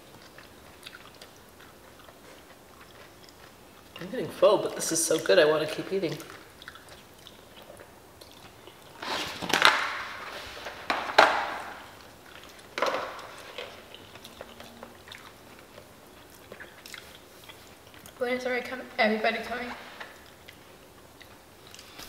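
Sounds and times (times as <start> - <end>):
plastic forks crunching and scraping: 8.9 - 11.8.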